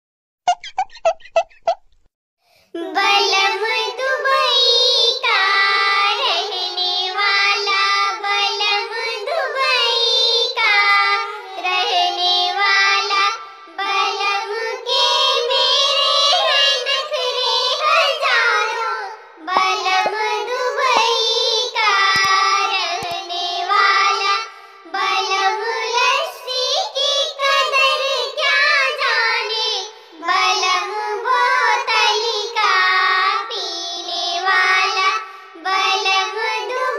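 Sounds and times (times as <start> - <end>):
sped-up folk singing: 2.8 - 36.9.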